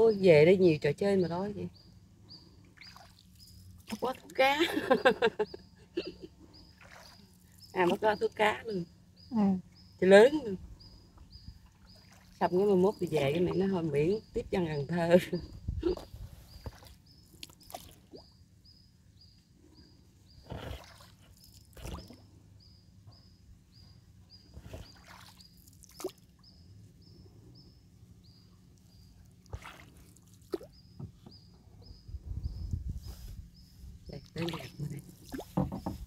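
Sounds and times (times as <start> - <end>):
oar splashing in water: 6.7 - 8.0, 11.6 - 12.7, 20.4 - 22.2, 24.5 - 26.3, 29.4 - 31.2, 34.3 - 36.0
wooden boat knocks: 31.0 - 31.4, 35.4 - 36.0.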